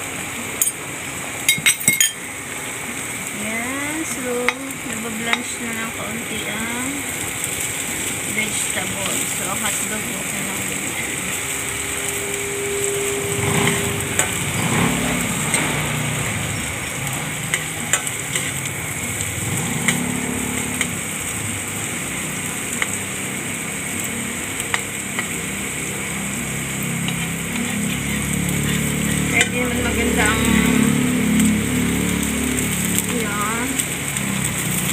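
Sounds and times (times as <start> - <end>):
food sizzling in a frying pan: 0.0 - 34.9
metal spatula scraping a pan: 11.0 - 16.7, 17.3 - 18.8.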